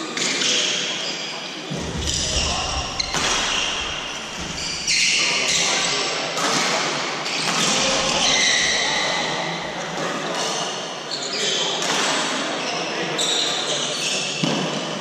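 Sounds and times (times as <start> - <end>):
players' voices: 0.0 - 14.7
shoe squeaks on court floor: 0.2 - 6.1, 7.2 - 9.2, 10.4 - 11.8, 12.6 - 14.5.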